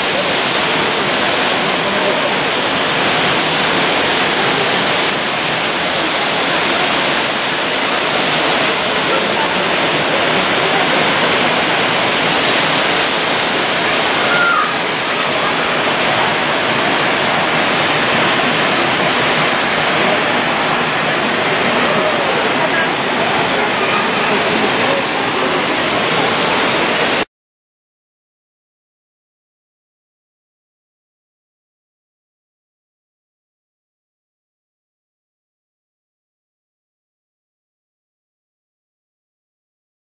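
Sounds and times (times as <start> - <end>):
waterfall rushing: 0.0 - 27.3.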